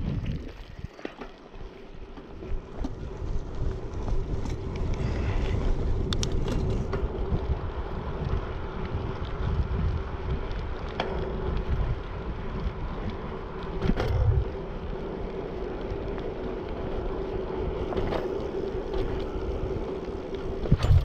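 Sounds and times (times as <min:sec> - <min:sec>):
wind buffeting microphone: 0:00.0 - 0:01.0, 0:01.8 - 0:21.0.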